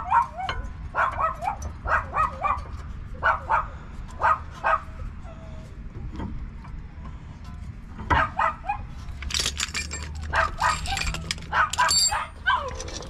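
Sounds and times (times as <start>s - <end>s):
dog barking: 0.0s - 5.0s, 8.1s - 8.9s, 10.3s - 12.7s.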